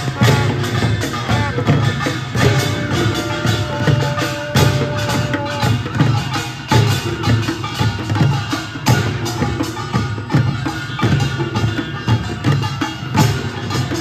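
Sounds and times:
horn holding long note: 0.0s - 6.0s
hand drums marching beat: 0.0s - 14.0s.

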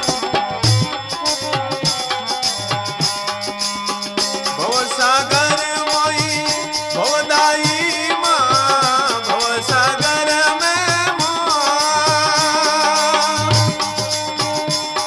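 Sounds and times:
folk drum and rattle rhythm: 0.0s - 15.0s
held drone: 12.3s - 15.0s.

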